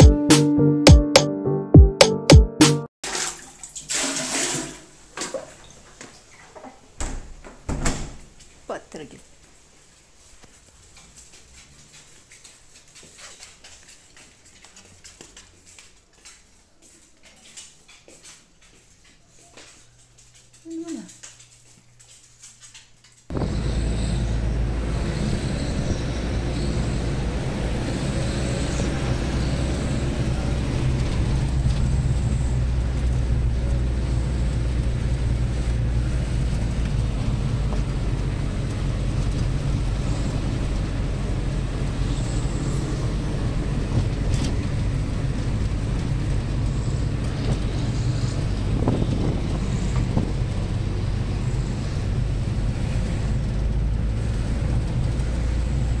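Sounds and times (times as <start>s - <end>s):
car engine and road noise: 23.3s - 56.0s.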